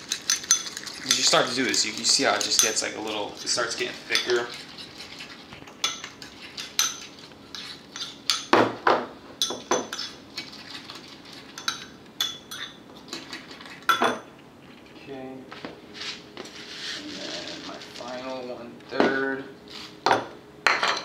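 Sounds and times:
metal spoon stirring in a bowl: 0.0 - 8.5, 9.4 - 14.2.

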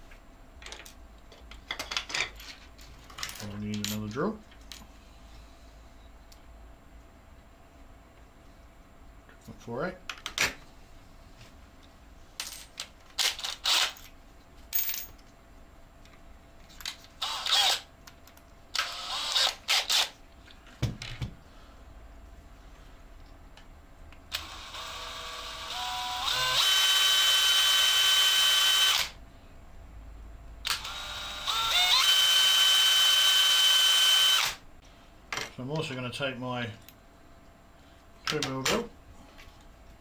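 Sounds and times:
clicks and rattles of tools: 0.6 - 4.9, 16.0 - 17.2
cordless drill whining: 17.2 - 17.8, 18.8 - 20.1, 24.3 - 29.2, 30.7 - 34.6.

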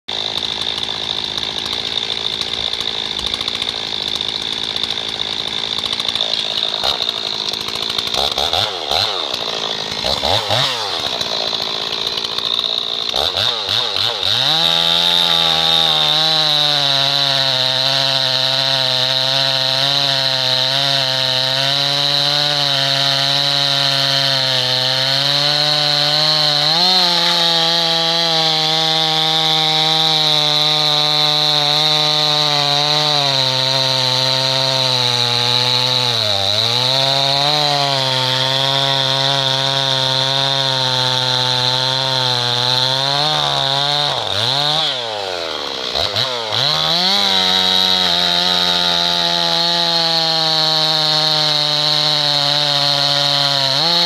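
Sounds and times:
chainsaw cutting through log: 0.0 - 54.0
chainsaw idling and revving: 0.0 - 54.0.

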